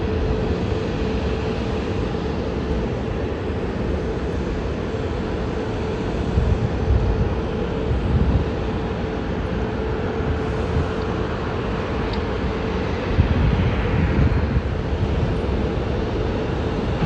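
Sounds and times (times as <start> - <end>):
jet engines droning: 0.0 - 17.0.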